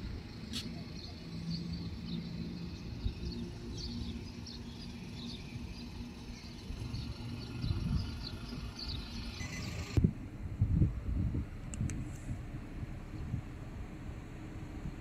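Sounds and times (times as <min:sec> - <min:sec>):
low vehicle rumble: 0:00.0 - 0:15.0
small birds chirping: 0:00.2 - 0:10.0.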